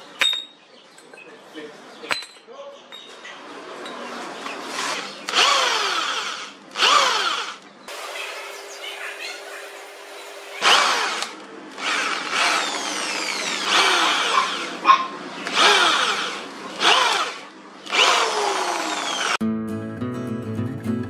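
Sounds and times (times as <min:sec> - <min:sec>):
electric drill boring through steel: 0:04.8 - 0:08.8, 0:09.7 - 0:14.8, 0:15.4 - 0:19.4
acoustic guitar music: 0:19.4 - 0:21.0.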